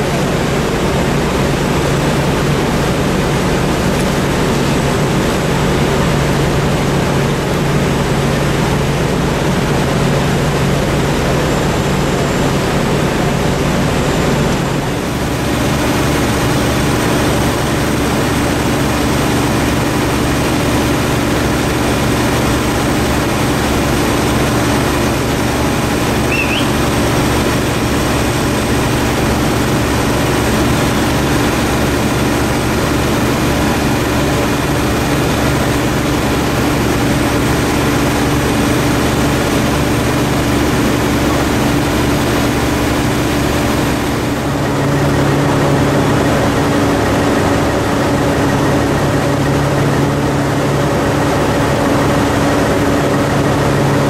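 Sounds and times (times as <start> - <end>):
diesel engines droning: 0.0 - 54.0
rushing fire and water streams: 0.0 - 54.0
brief high chirp: 26.3 - 26.8.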